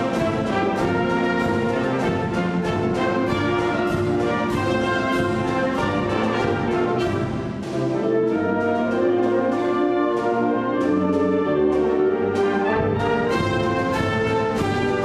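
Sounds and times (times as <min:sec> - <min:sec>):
wind band playing: 0:00.0 - 0:15.0.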